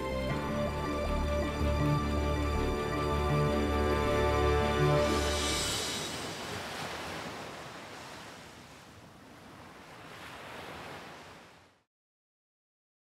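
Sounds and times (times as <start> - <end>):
ocean waves washing: 0.0 - 11.8.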